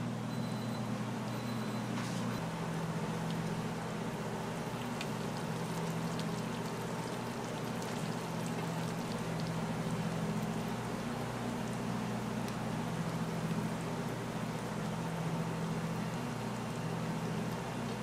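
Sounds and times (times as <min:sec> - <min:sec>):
machine hum: 0:00.0 - 0:18.0.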